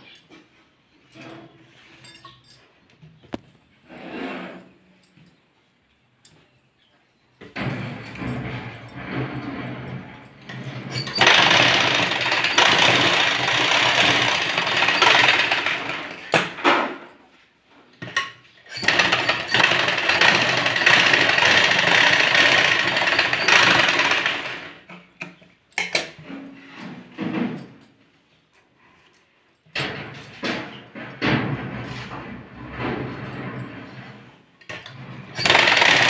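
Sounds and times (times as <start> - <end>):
sewing machine stitching: 10.5 - 16.4, 18.6 - 24.8, 34.8 - 36.0.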